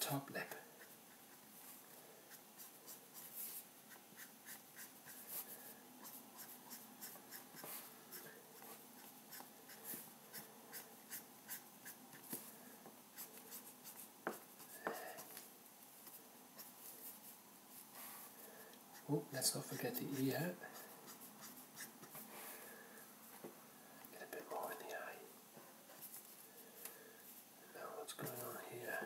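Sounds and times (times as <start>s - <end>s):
felt-tip pen scratching on paper: 2.3s - 12.4s, 18.9s - 22.2s.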